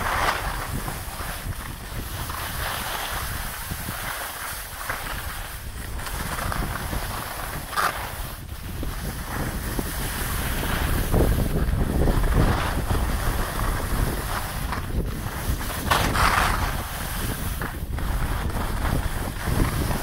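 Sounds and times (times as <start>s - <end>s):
skis scraping on snow: 0.0s - 20.0s
wind buffeting microphone: 0.0s - 20.0s.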